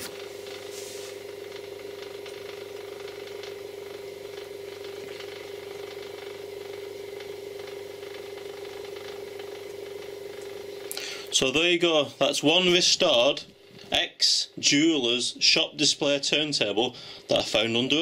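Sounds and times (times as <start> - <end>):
electric motor humming: 0.0 - 13.2.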